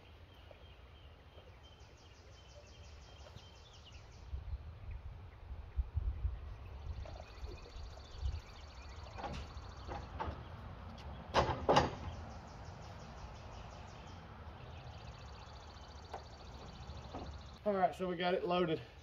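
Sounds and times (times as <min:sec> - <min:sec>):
wood knocking and scraping: 0:09.1 - 0:12.1
loud thuds on wooden deck: 0:11.3 - 0:12.2.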